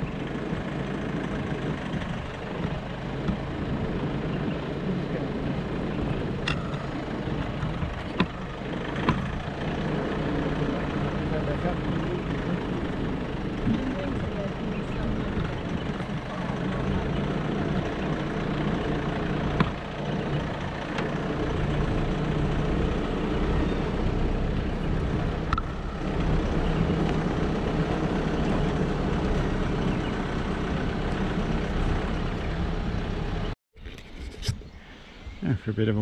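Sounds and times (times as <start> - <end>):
tyre and road noise: 0.0 - 36.0
vehicle engine running: 0.0 - 36.0.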